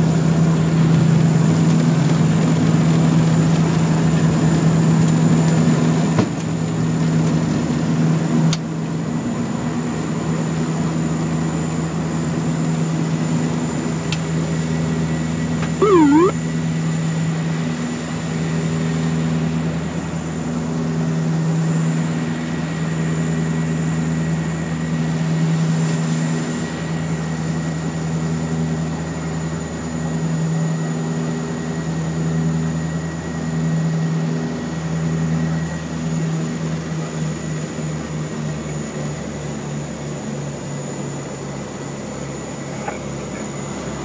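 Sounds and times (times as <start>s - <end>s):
faint high whine: 15.8s - 16.4s.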